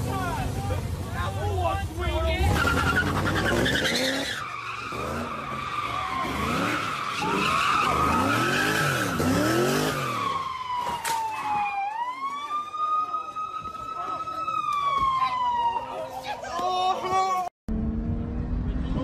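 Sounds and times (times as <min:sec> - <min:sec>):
car engine revving: 0:02.0 - 0:10.4
tyres screeching: 0:02.4 - 0:10.4
police siren wailing: 0:02.5 - 0:17.1.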